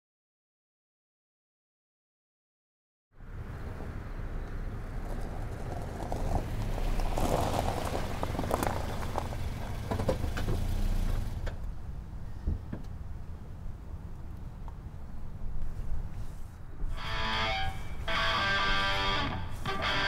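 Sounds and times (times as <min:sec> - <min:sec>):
car engine running: 0:05.6 - 0:11.6.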